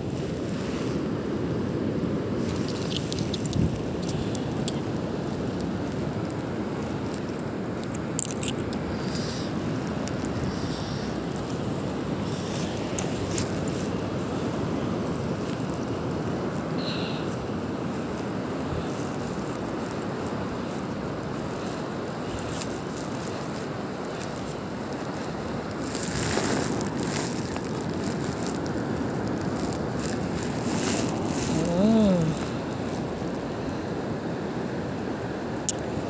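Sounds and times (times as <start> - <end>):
surf washing on beach: 0.0 - 36.0
wind buffeting microphone: 0.0 - 36.0
person humming: 31.4 - 32.6.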